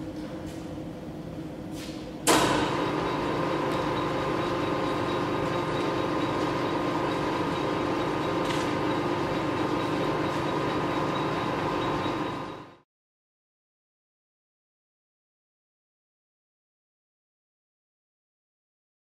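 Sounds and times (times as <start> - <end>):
lathe machine hum: 2.3 - 12.8.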